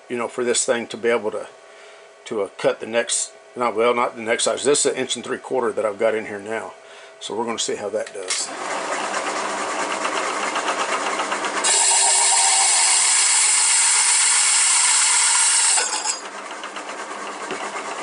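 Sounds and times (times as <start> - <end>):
hole saw cutting aluminium: 11.4 - 16.3.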